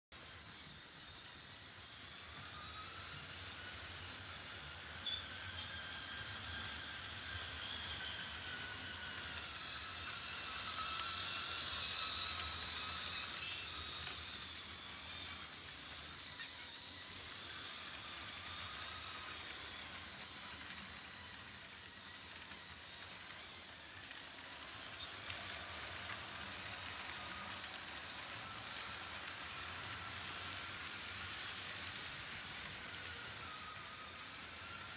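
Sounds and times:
model train motors whining: 0.2s - 34.9s
wheels rolling on track: 0.2s - 34.9s.

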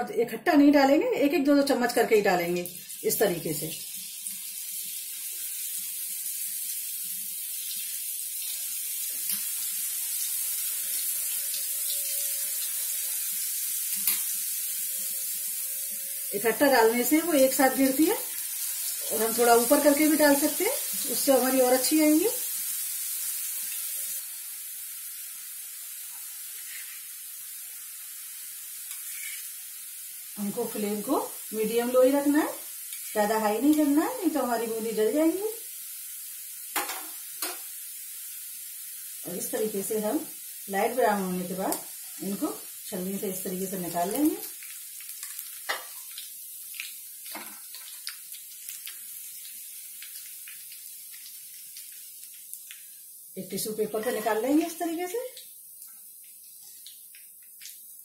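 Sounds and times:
batter frying in hot oil: 0.7s - 58.0s.

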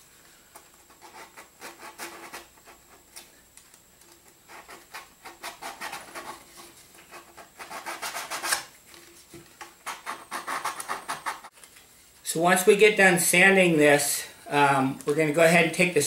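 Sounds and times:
sandpaper scratching plastic: 0.8s - 3.0s, 4.5s - 8.7s, 9.8s - 11.5s.

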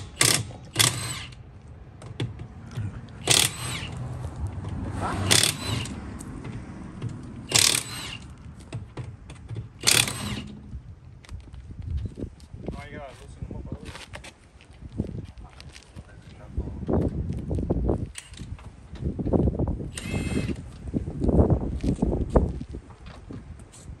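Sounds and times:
impact wrench rattling: 0.0s - 1.4s, 3.2s - 4.0s, 5.3s - 6.0s, 7.5s - 10.7s.

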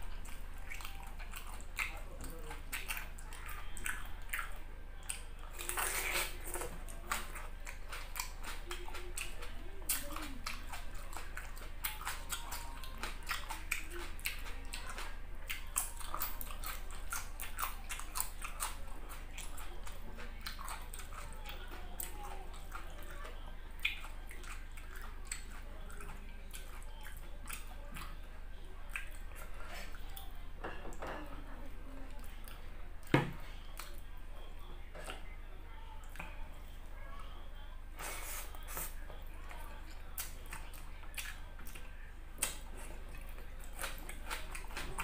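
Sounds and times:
person chewing with mouth smacks: 0.0s - 30.3s, 38.0s - 45.0s.

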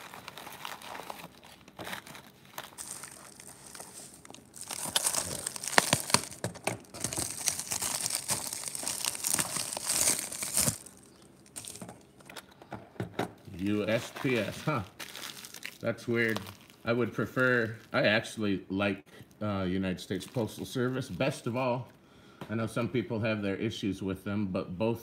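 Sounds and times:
paper crinkling and tearing: 0.0s - 11.9s, 13.6s - 18.0s.

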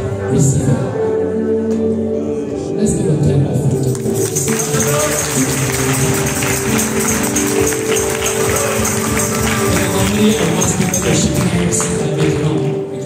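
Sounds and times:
worship music with held notes: 0.0s - 13.0s
high shaking beat: 4.1s - 12.0s.

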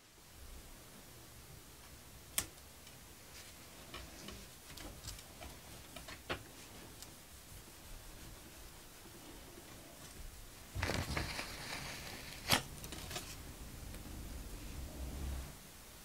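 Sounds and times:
plastic film handled: 10.7s - 14.0s.

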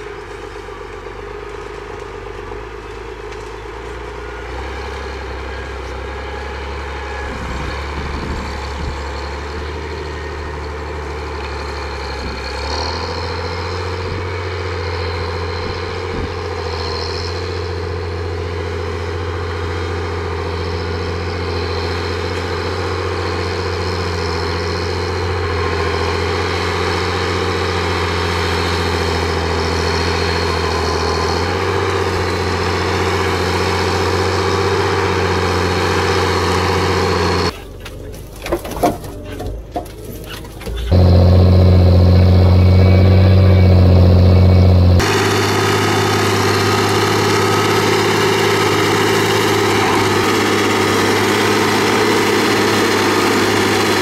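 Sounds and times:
diesel engine under load: 0.0s - 54.0s.

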